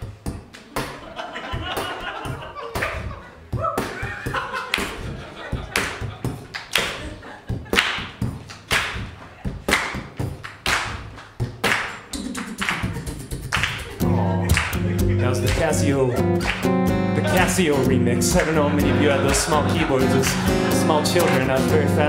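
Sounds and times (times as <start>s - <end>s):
beatboxing into microphone: 11.3s - 22.0s.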